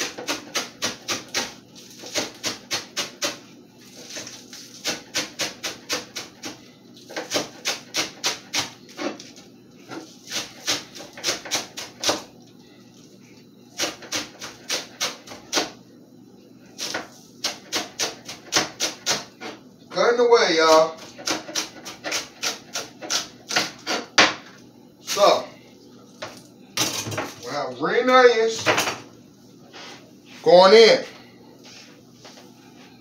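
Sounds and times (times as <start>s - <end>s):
knife chopping on cutting board: 0.0s - 3.4s, 4.1s - 9.3s, 9.9s - 12.3s, 16.8s - 19.6s, 20.7s - 24.4s.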